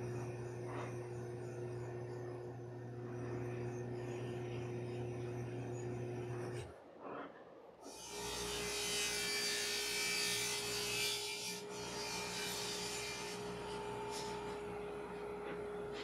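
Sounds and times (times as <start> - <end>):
table saw cutting wood: 0.0 - 6.7, 7.8 - 16.0.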